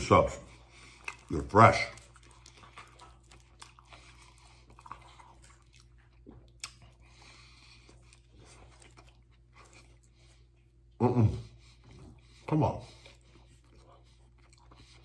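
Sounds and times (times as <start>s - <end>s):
man chewing: 0.0s - 15.0s
soft mouth clicks: 6.6s - 6.9s.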